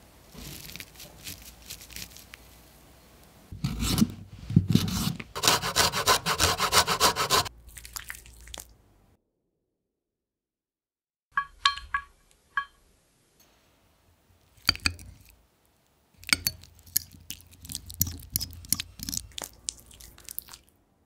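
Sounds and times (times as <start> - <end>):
crisp crackling: 0.3 - 2.6
metal spoons clinking: 16.2 - 17.4.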